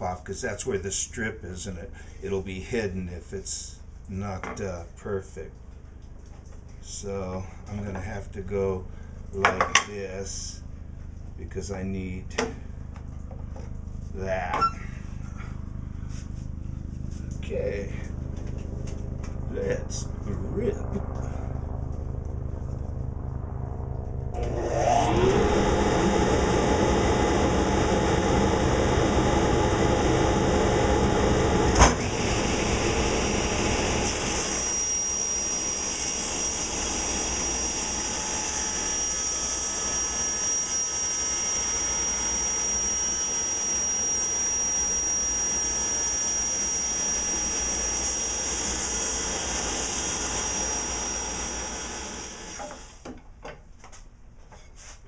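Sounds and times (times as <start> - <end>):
table saw running: 24.3 - 53.0
board cut by saw blade: 24.4 - 53.0.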